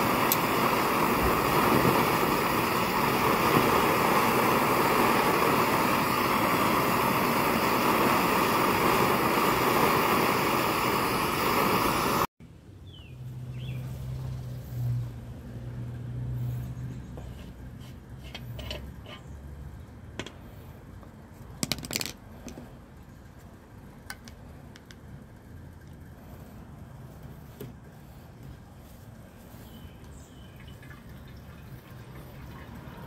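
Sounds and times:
metal clinks and scrapes: 17.4 - 19.3.

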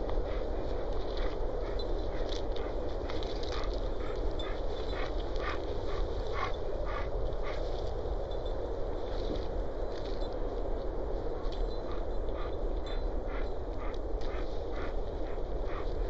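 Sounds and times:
steady low rush: 0.0 - 16.0
dog making breathy sounds: 13.3 - 16.0.

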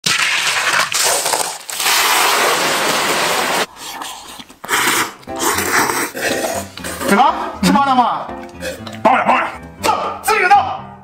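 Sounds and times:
oil sizzling: 0.0 - 3.7.

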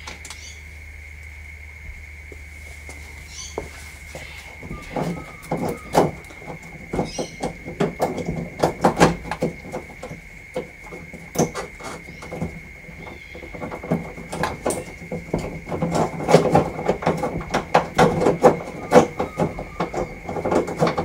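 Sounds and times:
hand tools clicking and knocking: 4.6 - 21.0.

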